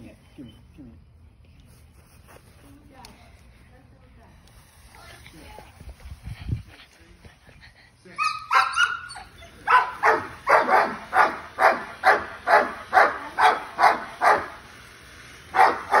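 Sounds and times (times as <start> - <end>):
dog yelping: 8.2 - 14.5
dog barking: 8.2 - 14.6, 15.5 - 16.0.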